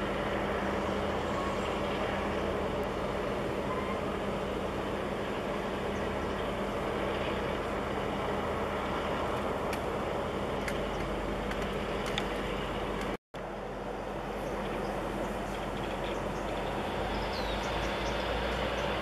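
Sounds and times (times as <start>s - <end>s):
distant locomotive engine hum: 0.0s - 19.0s.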